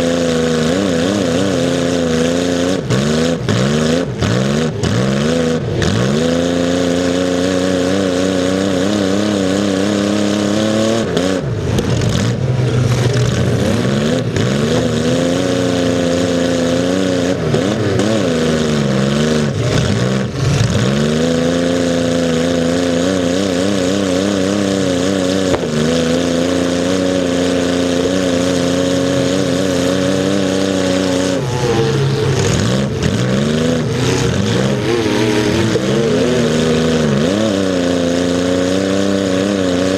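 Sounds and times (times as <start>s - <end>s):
car engine revving: 0.0s - 39.9s.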